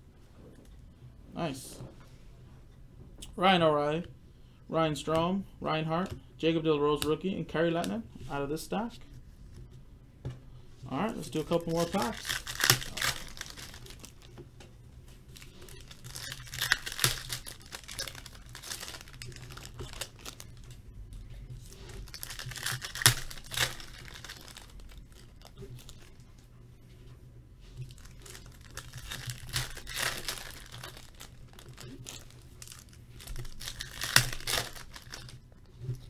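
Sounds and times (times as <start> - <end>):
cards rustling: 10.9 - 14.4, 15.0 - 20.8, 21.6 - 26.3, 27.8 - 36.0
foil wrappers tearing and crumpling: 11.2 - 14.3, 15.3 - 20.7, 21.6 - 26.1, 27.9 - 35.4.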